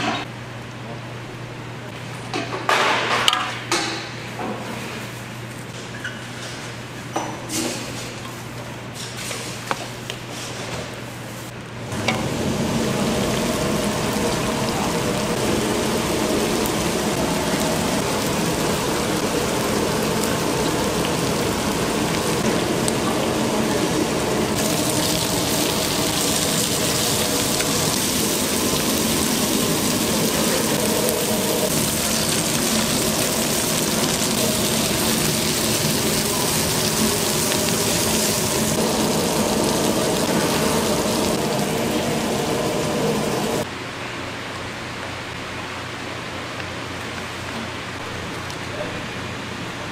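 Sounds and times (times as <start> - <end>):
fish frying in oil: 12.0 - 43.6.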